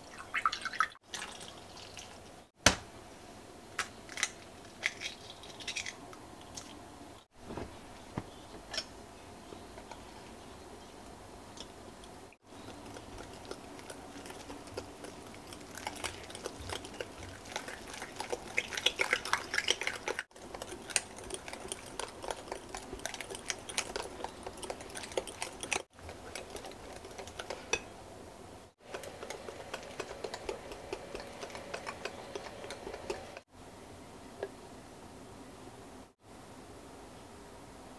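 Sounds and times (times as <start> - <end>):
whisk beating batter in glass bowl: 12.5 - 27.8, 28.8 - 33.4.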